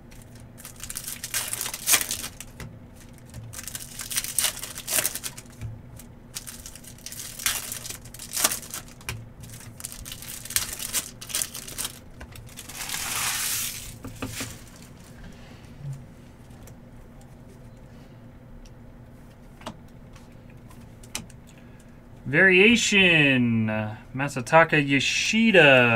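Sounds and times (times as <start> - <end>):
card pack wrappers crinkling: 0.0 - 15.2
wrapper tearing rip: 0.6 - 5.6, 6.4 - 14.9.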